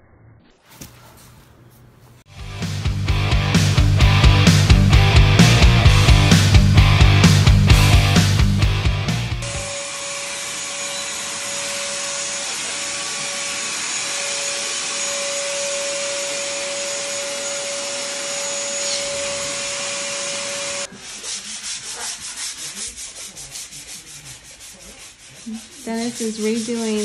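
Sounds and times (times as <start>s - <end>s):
shop vacuum whining: 3.1s - 21.0s
rhythmic rubbing strokes: 16.2s - 27.0s.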